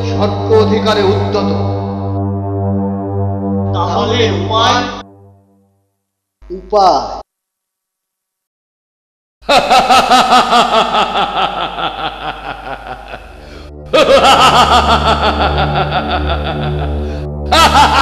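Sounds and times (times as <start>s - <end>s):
low pulsing drone: 0.0s - 5.5s, 11.2s - 18.0s
man laughing villainously: 9.4s - 18.0s.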